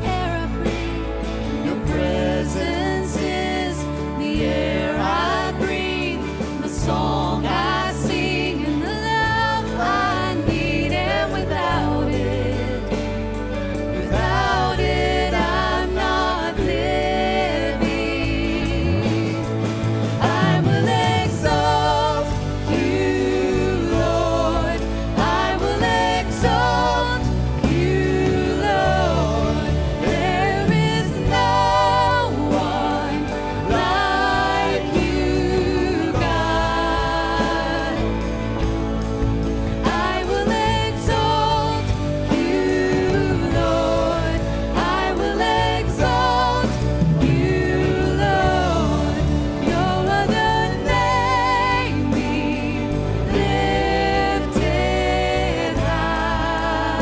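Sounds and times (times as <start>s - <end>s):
acoustic guitar: 0.0s - 57.0s
drums: 0.0s - 57.0s
electric bass: 0.0s - 57.0s
keyboard: 0.0s - 57.0s
voices singing: 0.0s - 57.0s.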